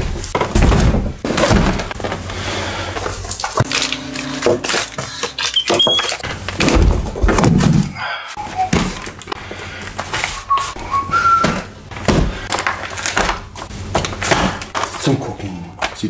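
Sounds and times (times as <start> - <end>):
cardboard boxes knocking and thudding: 0.0 - 2.3.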